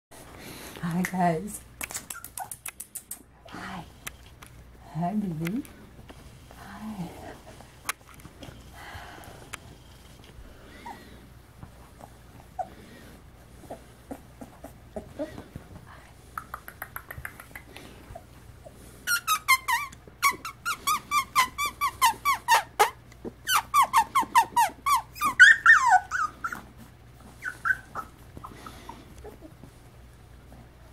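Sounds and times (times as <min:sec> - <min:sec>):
puppies yipping and whining: 0:18.1 - 0:29.9.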